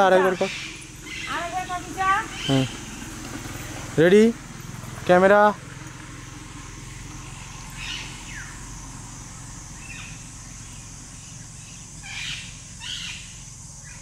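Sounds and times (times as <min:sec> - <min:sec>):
high insect drone: 0:00.0 - 0:14.0
short bird calls: 0:02.3 - 0:02.9, 0:09.8 - 0:14.0.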